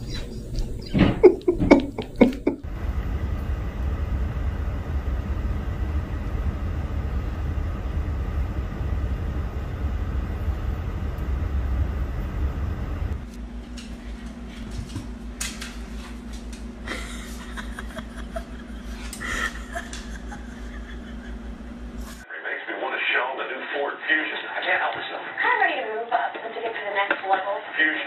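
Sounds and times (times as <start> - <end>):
car engine rumble: 0.0 - 13.2
road noise inside car: 2.6 - 13.2.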